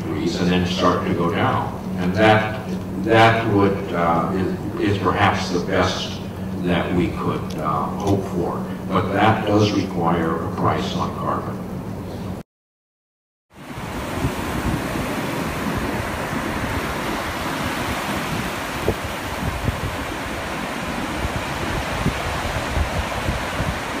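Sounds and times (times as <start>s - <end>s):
surf washing onto beach: 13.6s - 24.0s.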